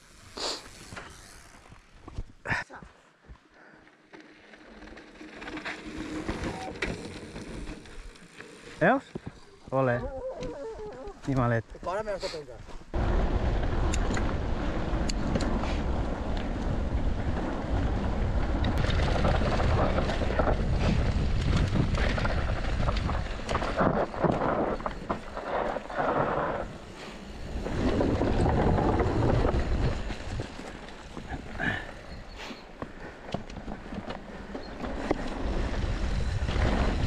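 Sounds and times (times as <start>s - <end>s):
bike clicks and rattles: 0.0s - 2.4s, 3.8s - 9.5s, 13.8s - 37.0s
wind buffeting microphone: 12.9s - 32.3s, 35.4s - 37.0s.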